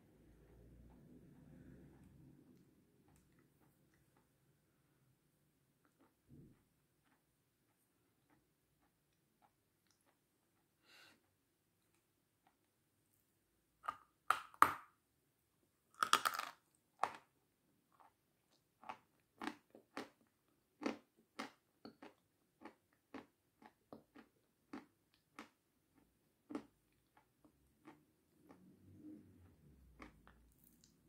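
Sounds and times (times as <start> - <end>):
crisp meringue crunching: 16.0 - 17.3.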